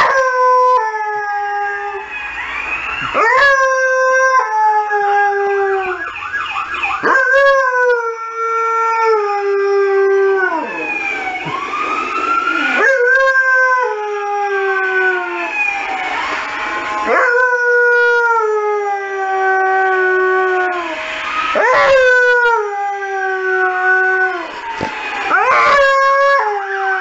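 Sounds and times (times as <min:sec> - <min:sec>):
emergency vehicle siren: 0:00.0 - 0:27.0.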